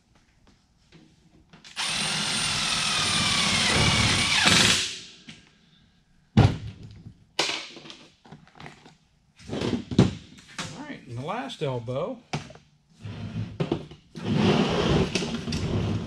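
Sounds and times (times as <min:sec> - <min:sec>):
cordless drill driving screw: 0:01.7 - 0:04.8.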